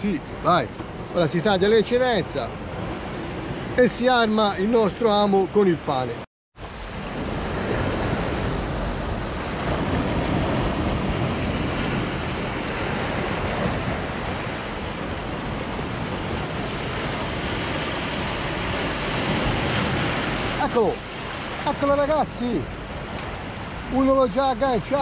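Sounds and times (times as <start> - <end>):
wind on microphone: 6.7 - 24.3
waves breaking on rocks: 7.1 - 25.0.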